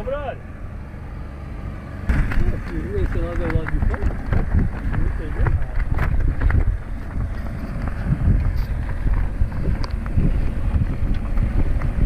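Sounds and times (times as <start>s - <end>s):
wind buffeting microphone: 2.1s - 12.0s.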